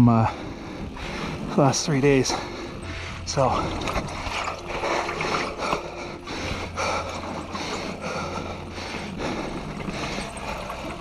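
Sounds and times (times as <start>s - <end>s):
bike tyres rolling over dirt: 0.0s - 11.0s
heavy rhythmic breathing: 0.0s - 11.0s
bike chain and parts rattling: 3.2s - 11.0s.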